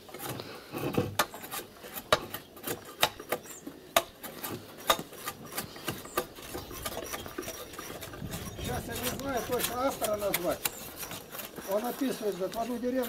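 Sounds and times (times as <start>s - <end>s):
low scraping: 4.2s - 13.0s.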